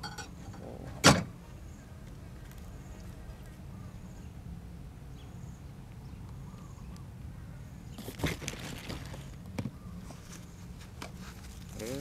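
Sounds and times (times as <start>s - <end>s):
crunching crisp food: 8.0s - 9.4s.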